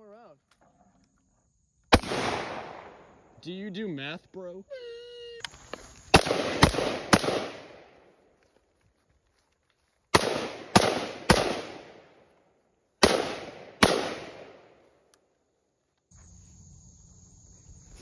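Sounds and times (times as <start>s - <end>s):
rifle shots with echo: 1.9s - 3.1s, 6.1s - 8.0s, 10.1s - 12.2s, 13.0s - 14.8s.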